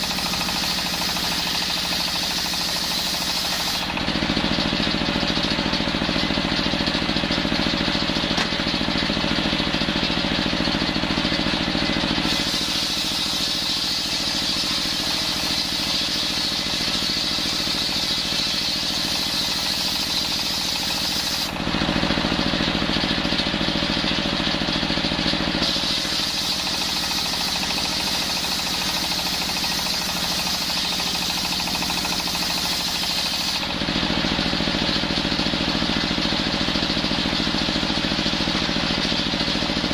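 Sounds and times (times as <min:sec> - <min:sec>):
circular saw cutting wood: 0:00.0 - 0:05.0, 0:11.6 - 0:23.0, 0:25.4 - 0:35.5.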